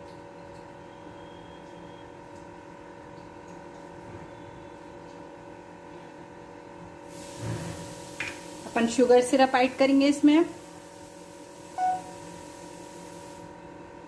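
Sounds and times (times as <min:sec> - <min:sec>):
hiss: 0:07.1 - 0:09.0, 0:10.5 - 0:13.5.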